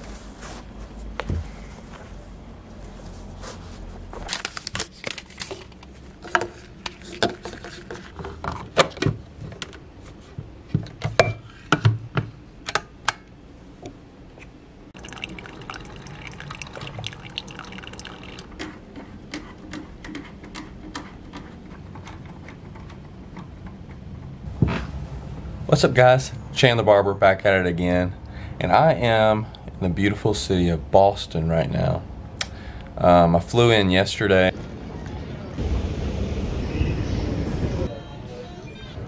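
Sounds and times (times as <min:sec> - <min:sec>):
coffee pouring into a mug: 0:15.0 - 0:18.6.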